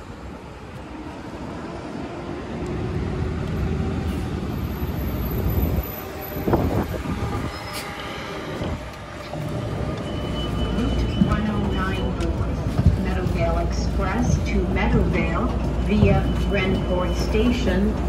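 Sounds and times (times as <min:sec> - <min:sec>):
bus drive noise: 0:00.0 - 0:18.0
brake squeal: 0:07.4 - 0:08.5, 0:10.0 - 0:12.1.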